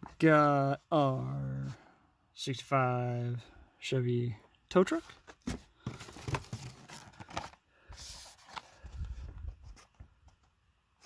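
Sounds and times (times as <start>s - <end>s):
plastic blister packs rustling: 5.0s - 9.0s.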